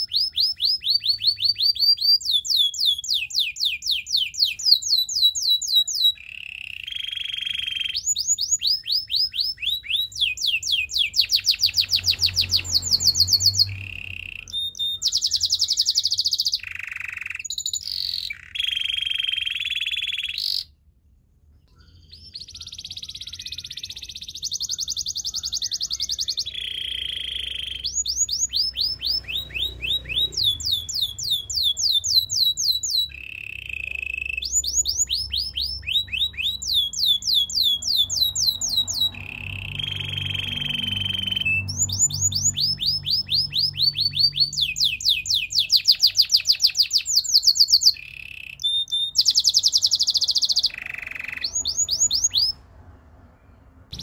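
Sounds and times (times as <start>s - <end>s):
canary singing: 0.0s - 20.9s, 21.6s - 52.7s, 53.4s - 54.0s.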